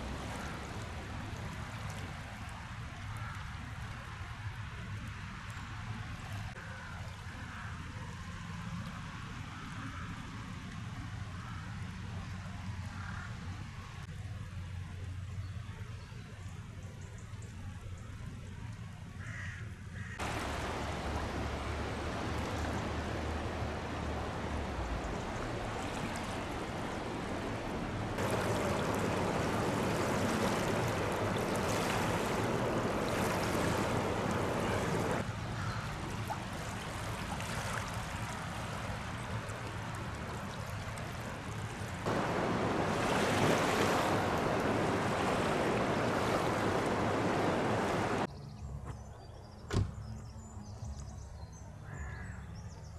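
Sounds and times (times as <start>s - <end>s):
river rushing: 20.2s - 48.3s.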